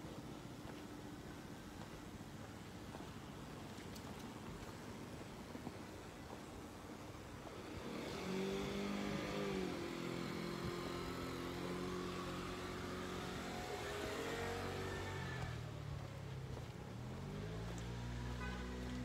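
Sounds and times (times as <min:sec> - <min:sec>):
vehicle engine revving: 0:07.6 - 0:16.0.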